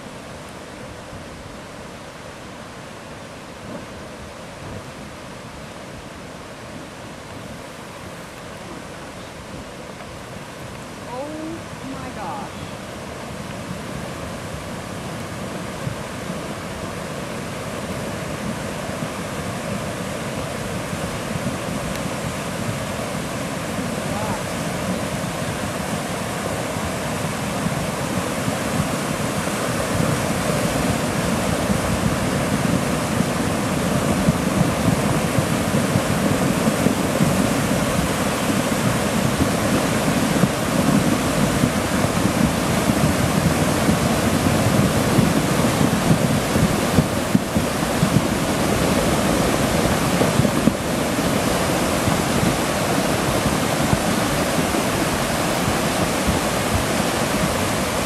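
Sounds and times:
floodwater rushing over rocks: 0.0s - 58.0s.

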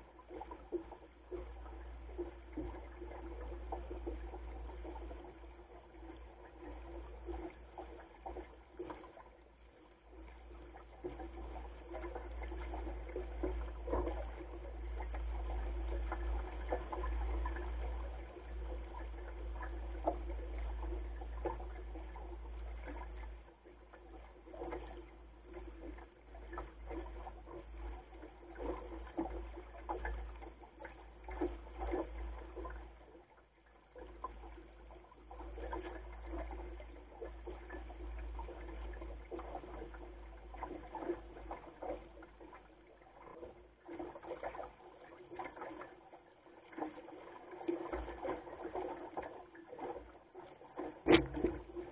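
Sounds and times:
water splashing against boat: 0.0s - 51.9s
low rumble: 51.1s - 51.9s.

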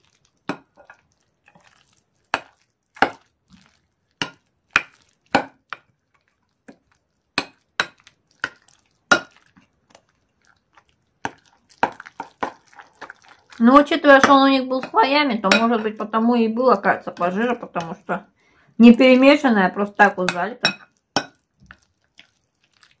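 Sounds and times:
metal spoon clinking glass bowl: 15.5s - 15.8s, 20.3s - 21.4s.

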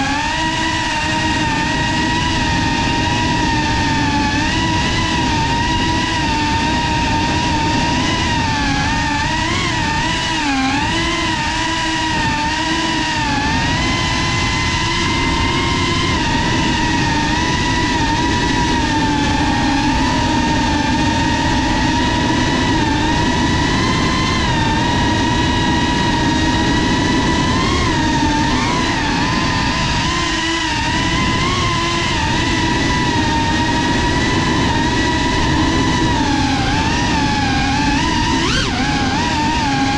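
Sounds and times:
drone motors whining: 0.0s - 39.9s.

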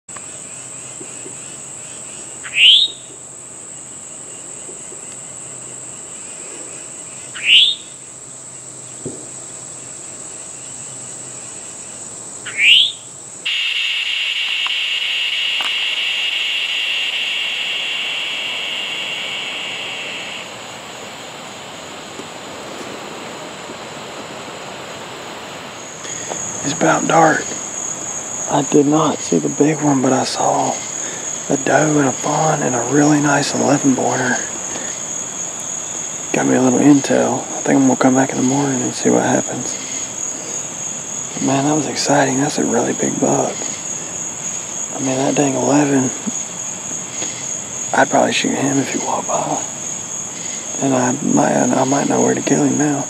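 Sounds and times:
low insect buzz: 0.1s - 53.0s
high-pitched insect drone: 0.2s - 22.0s, 25.7s - 53.0s
short rising calls: 12.4s - 21.4s.

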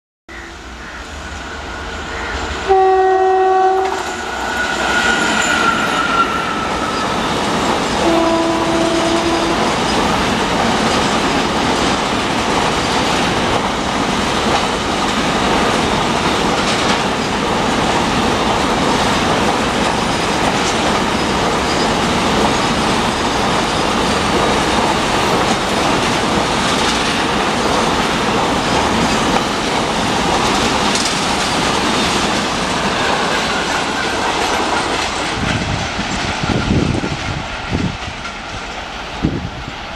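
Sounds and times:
train wagons rolling past: 0.5s - 39.9s
locomotive horn blasts: 2.6s - 6.9s, 8.0s - 9.7s.

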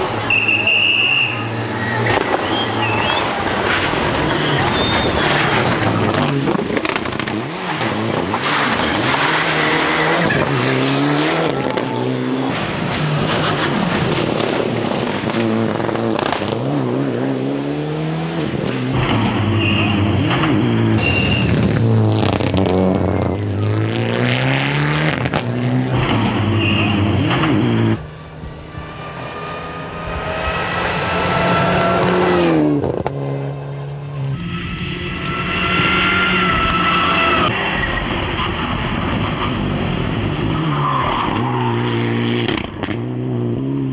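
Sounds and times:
rally car engine revving: 0.0s - 43.9s.

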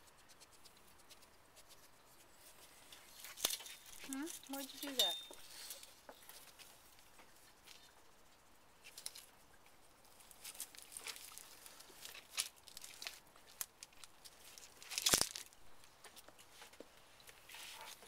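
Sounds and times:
animal stepping over gravel: 2.5s - 6.8s, 10.2s - 16.2s.

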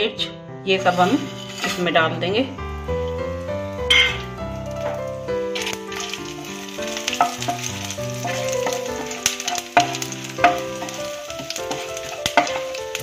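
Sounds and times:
background music: 0.0s - 13.0s
spices sizzling in hot oil: 0.7s - 13.0s
wooden spatula knocking pan: 3.9s - 13.0s.

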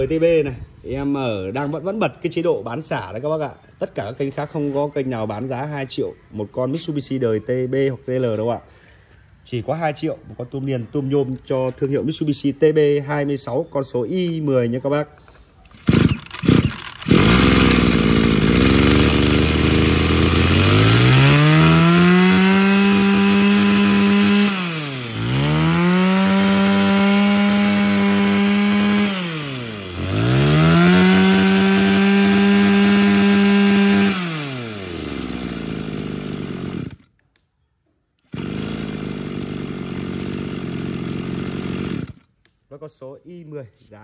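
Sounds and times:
brush cutter engine revving: 15.7s - 37.1s, 38.2s - 42.5s.

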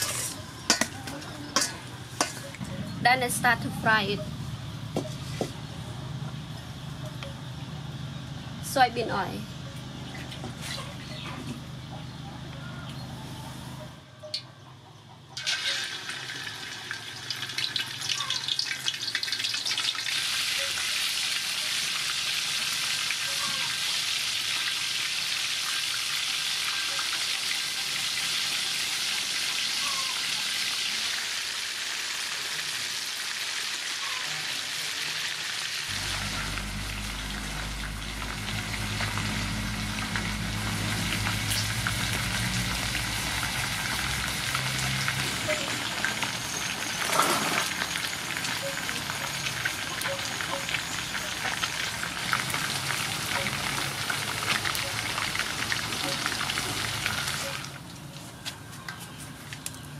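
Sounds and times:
crackling pops of frying: 0.0s - 2.4s, 15.4s - 21.3s
oil sizzling: 0.0s - 4.2s, 15.4s - 58.0s
low hum: 35.9s - 45.1s.

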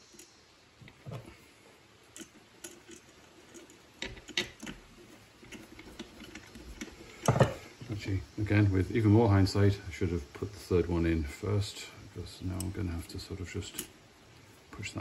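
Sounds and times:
metal parts clicking and knocking: 2.0s - 8.0s, 12.5s - 14.2s.

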